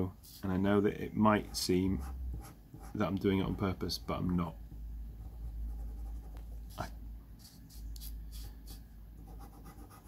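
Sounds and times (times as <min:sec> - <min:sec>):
steady low hum: 0:00.0 - 0:10.0
marker scratching on paper: 0:05.2 - 0:10.0.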